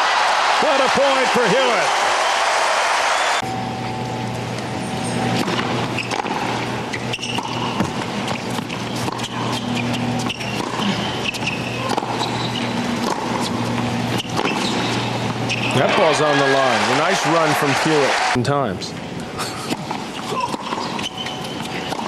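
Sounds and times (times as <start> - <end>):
steady low hum: 3.4 - 15.7
tennis ball struck by racket: 5.4 - 6.6, 13.0 - 13.5.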